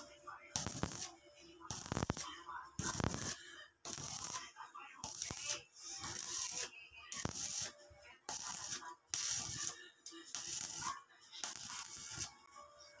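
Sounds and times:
scraping slag off steel weld: 0.6 - 1.1, 1.7 - 2.2, 2.8 - 4.4, 5.0 - 12.3.

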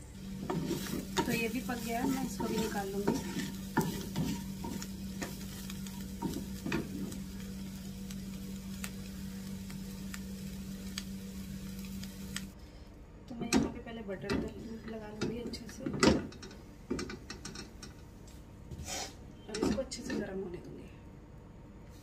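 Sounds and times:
vegetables sizzling in a pan: 0.0 - 12.6
low hum: 0.0 - 12.8
wooden spatula scraping a pan: 0.2 - 10.9.

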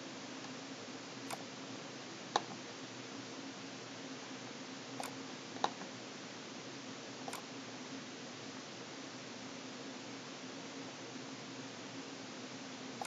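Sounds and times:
faint hum and hiss: 0.0 - 13.0
computer mouse clicks: 1.2 - 1.5, 5.0 - 5.9, 7.2 - 7.5.

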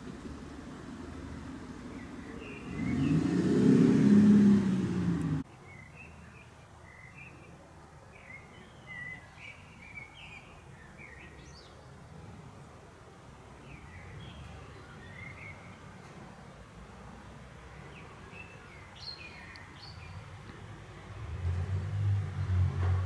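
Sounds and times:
car passing by: 0.0 - 5.4, 20.6 - 23.0
small birds chirping: 1.8 - 12.0, 13.5 - 16.1, 17.6 - 20.7.

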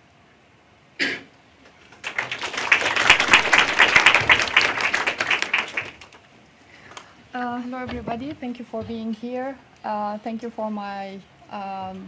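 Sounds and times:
audience applauding: 1.8 - 6.2.

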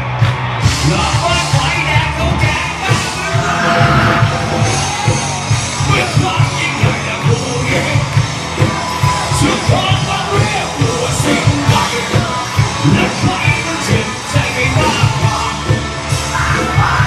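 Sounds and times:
drums keeping fast beat: 0.0 - 17.0
electric guitar: 0.0 - 17.0
person singing through pa: 9.3 - 17.0.

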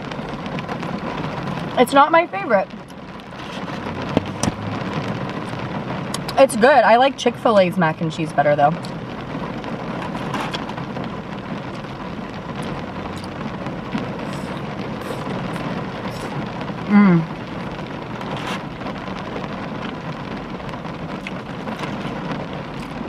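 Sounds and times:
rain on car roof: 0.0 - 23.0
person humming: 16.9 - 17.3.

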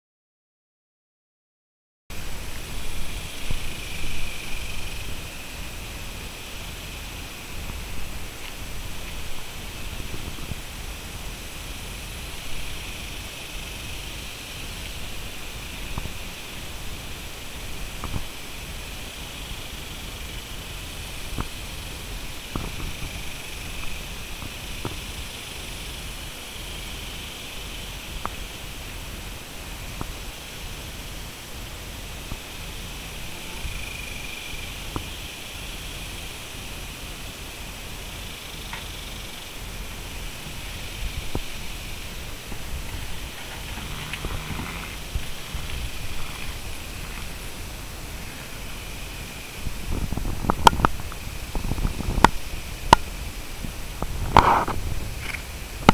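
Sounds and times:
outdoor hiss with low rumble: 2.1 - 55.9
hooves knocking on trailer floor: 42.5 - 47.4.

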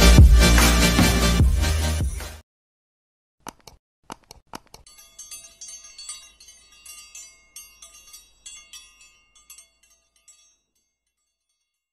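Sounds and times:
bright high chimes cascade: 4.9 - 11.7.

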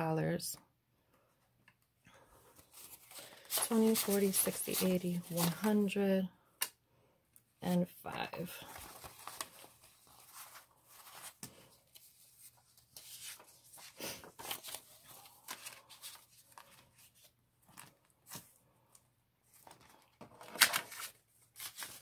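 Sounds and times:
paper banknotes rustling: 2.6 - 5.9, 8.1 - 18.5, 19.5 - 22.0.

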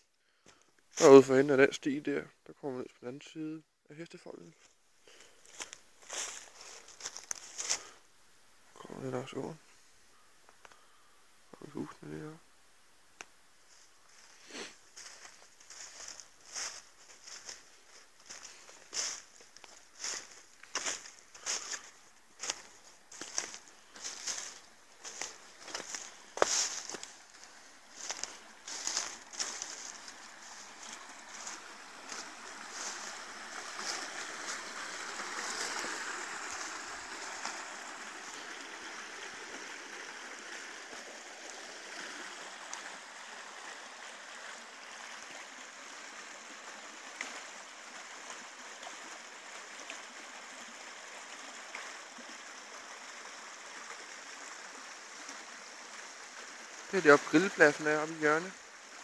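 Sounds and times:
footsteps in dry leaves: 4.6 - 8.0, 13.7 - 38.7
stream gurgling over stones: 5.4 - 9.6, 13.7 - 59.0.

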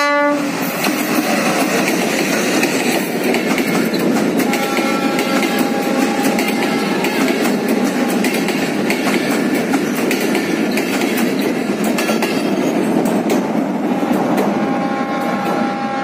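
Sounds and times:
train wheels rumbling on rails: 0.0 - 16.0
wheels clicking over rail joints: 0.8 - 13.6.

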